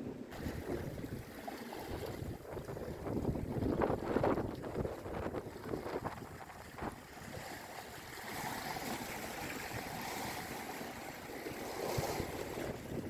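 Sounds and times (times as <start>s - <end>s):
strong wind: 0.0s - 7.6s, 11.5s - 13.0s
wind buffeting microphone: 0.0s - 13.0s
waves washing against rocky shore: 0.3s - 13.0s.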